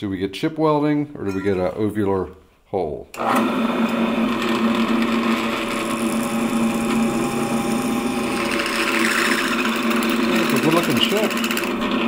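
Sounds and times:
drill motor humming: 3.2 - 12.0.

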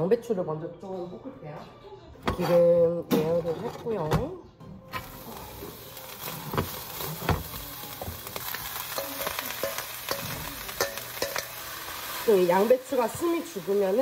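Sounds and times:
cabbage sizzling in hot oil: 5.0 - 14.0.

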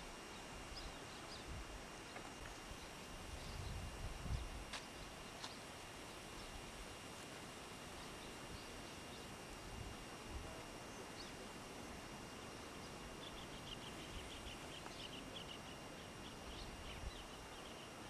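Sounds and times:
steady hiss: 0.0 - 18.0
small bird chirping: 12.3 - 18.0.

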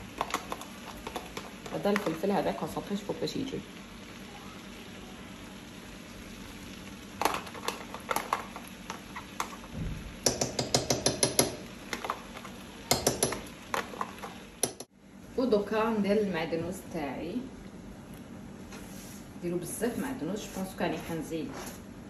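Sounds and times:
metal utensil tapping on plastic tub: 10.2 - 11.6, 12.9 - 13.4.

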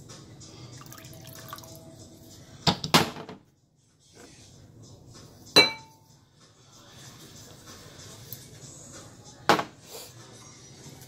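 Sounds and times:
glass jar clink: 5.6 - 6.0.

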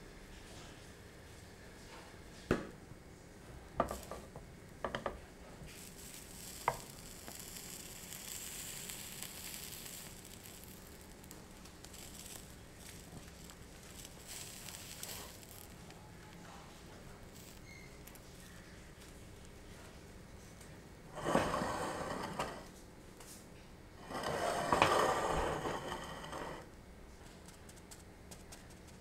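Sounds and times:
omelette sizzling in frying pan: 3.8 - 20.0, 21.1 - 23.3, 24.0 - 26.7.

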